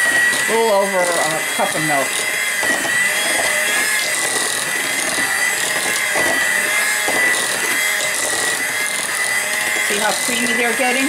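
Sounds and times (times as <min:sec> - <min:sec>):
beaters churning potatoes: 0:00.0 - 0:11.0
electric hand mixer whining: 0:00.0 - 0:11.0.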